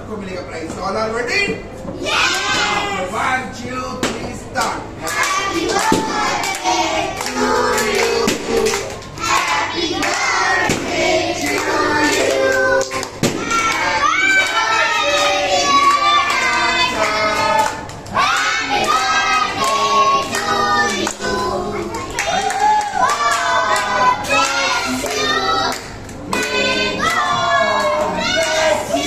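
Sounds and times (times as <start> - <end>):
children singing: 5.4 - 22.1, 23.0 - 29.0.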